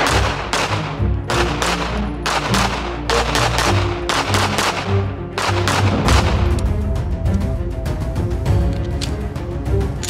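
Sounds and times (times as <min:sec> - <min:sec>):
pistol shots: 0:00.0 - 0:06.6
background music: 0:00.0 - 0:10.0.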